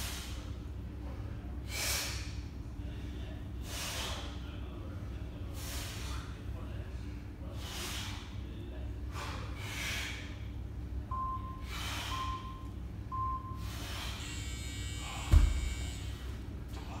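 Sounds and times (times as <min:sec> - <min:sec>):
man breathing hard: 0:01.6 - 0:02.3, 0:03.2 - 0:04.4, 0:05.5 - 0:06.4, 0:07.5 - 0:08.4, 0:09.0 - 0:10.6, 0:11.5 - 0:12.6, 0:13.6 - 0:14.5
timer beeps: 0:11.1 - 0:13.7
heavy thud: 0:15.3 - 0:15.8.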